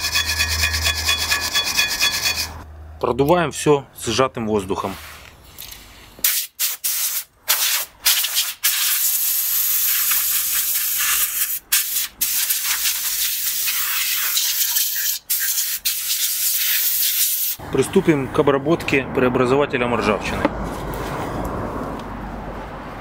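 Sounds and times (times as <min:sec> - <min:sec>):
compressed air blow gun hissing: 0:06.2 - 0:17.6.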